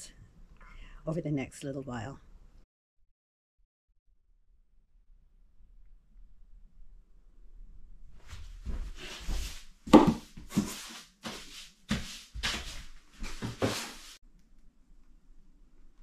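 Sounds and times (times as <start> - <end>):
broom sweeping a hard floor: 8.2 - 14.2.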